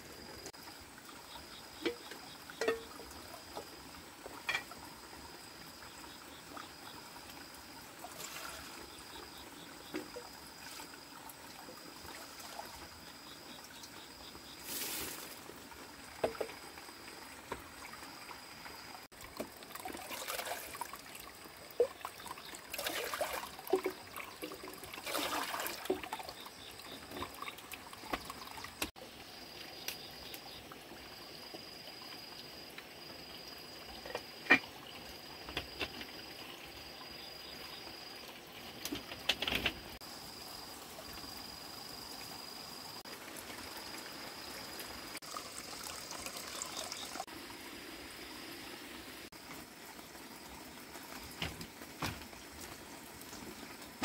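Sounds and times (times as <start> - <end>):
water trickling into trough: 0.0 - 29.5, 40.7 - 48.2
splashing in metal bowl: 19.7 - 21.0, 21.8 - 27.6.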